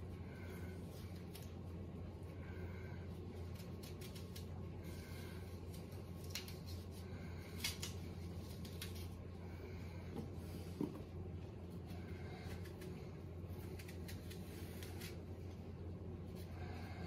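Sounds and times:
steady low hum: 0.0s - 17.0s
knife cutting apple: 3.5s - 4.6s, 12.2s - 15.6s.

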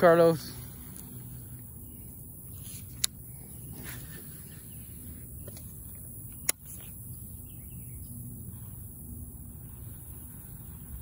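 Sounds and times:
low outdoor background noise: 0.0s - 11.0s
faint bird chirps: 1.3s - 8.9s.

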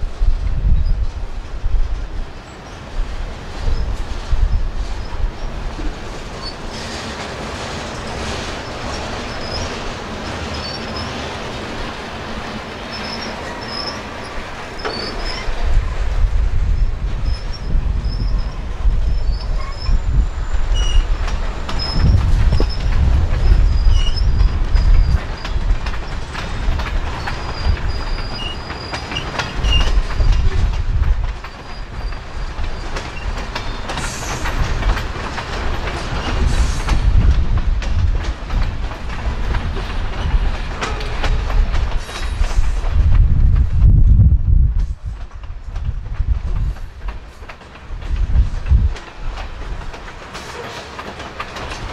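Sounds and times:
low train rumble: 0.0s - 51.9s
train wheels clicking over rails: 0.0s - 51.9s
high wheel squeals: 8.6s - 9.9s, 10.5s - 11.3s, 12.9s - 15.6s, 17.2s - 25.6s, 27.2s - 30.4s.

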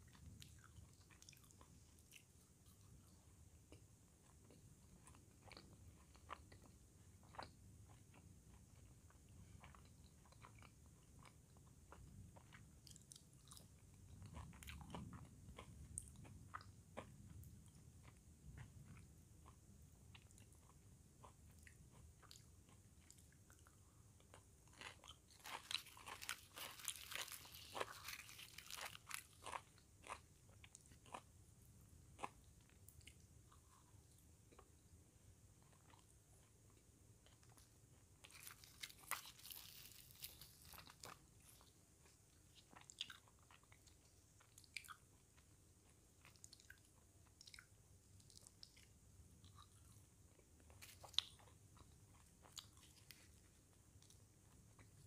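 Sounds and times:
quiet chewing: 0.0s - 31.3s, 35.5s - 55.0s
crisp crunches: 24.8s - 29.6s, 38.2s - 41.2s.

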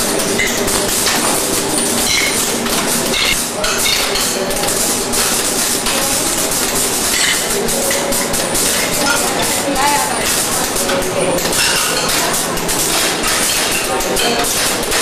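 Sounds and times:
machine clattering: 0.0s - 15.0s.

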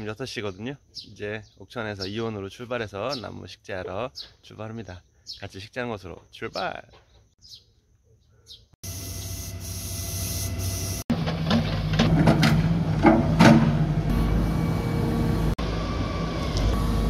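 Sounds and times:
diesel engine running: 8.9s - 17.0s.

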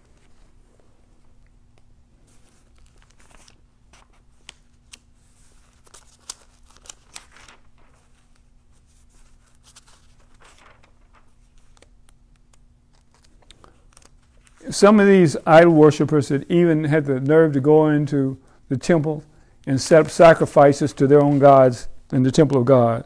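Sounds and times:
paper pages turning: 2.2s - 14.7s, 19.9s - 22.9s.

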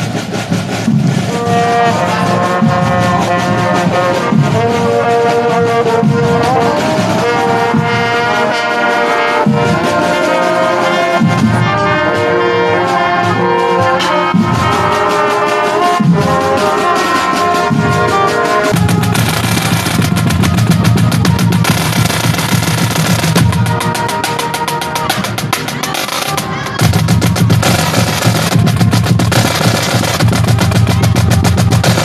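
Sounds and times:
marching band horns in harmony: 0.0s - 32.0s
sharp drum hits: 17.6s - 32.0s.

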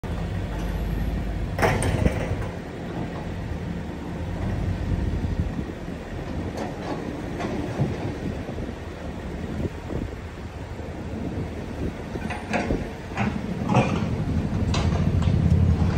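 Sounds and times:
car rumbling along road: 0.0s - 15.9s
knock or rattle: 1.6s - 2.5s.

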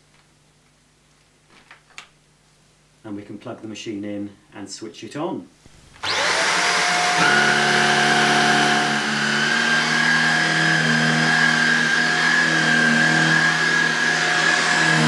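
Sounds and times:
vacuum cleaner motor whining: 5.9s - 15.0s.

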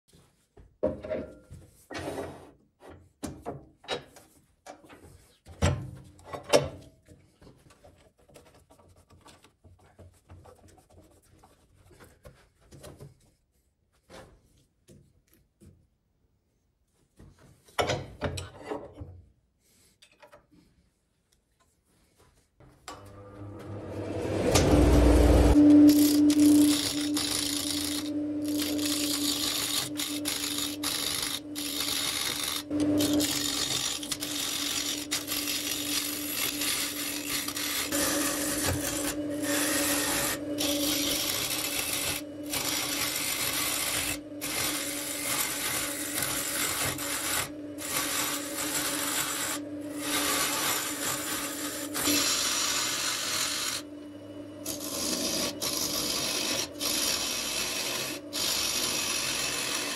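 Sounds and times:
lathe humming: 23.2s - 59.9s
gouge shaving wood: 24.3s - 53.8s, 54.6s - 59.9s.

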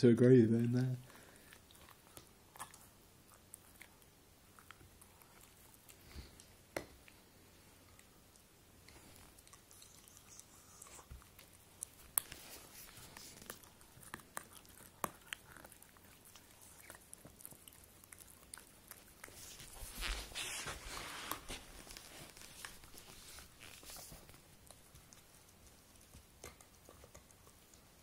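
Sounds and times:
dog gnawing rubber toy: 7.8s - 28.0s.

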